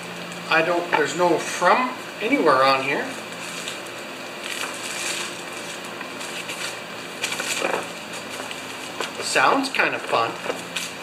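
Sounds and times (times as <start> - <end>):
plastic bag crinkling: 3.4 - 11.0.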